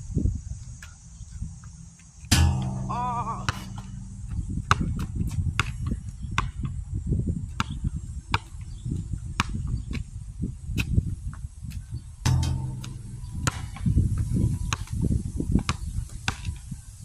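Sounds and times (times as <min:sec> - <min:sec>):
low irregular rumble: 0:02.3 - 0:06.8, 0:12.3 - 0:15.0
basketball bouncing on asphalt: 0:02.3 - 0:10.0, 0:12.3 - 0:15.0.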